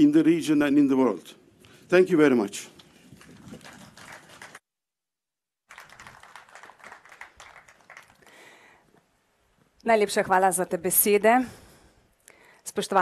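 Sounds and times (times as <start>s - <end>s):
faint audience applause: 3.2s - 4.6s, 5.7s - 8.8s.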